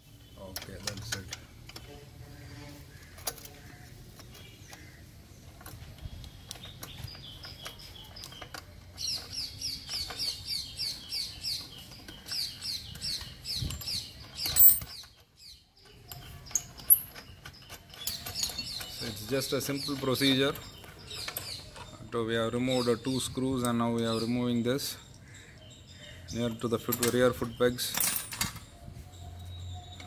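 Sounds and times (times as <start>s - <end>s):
small bird chirping: 0.0s - 27.9s, 28.6s - 30.0s
spanner clicking on metal bolt: 11.5s - 22.0s.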